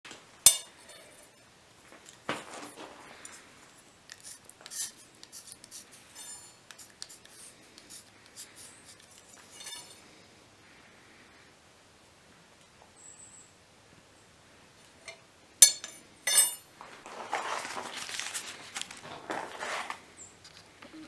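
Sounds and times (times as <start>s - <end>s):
marker scratching on steel anvil: 4.1s - 10.0s.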